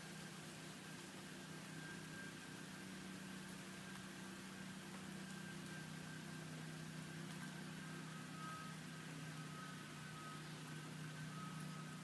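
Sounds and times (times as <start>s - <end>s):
low machinery hum: 0.0s - 12.0s
faint high tone: 7.4s - 12.0s.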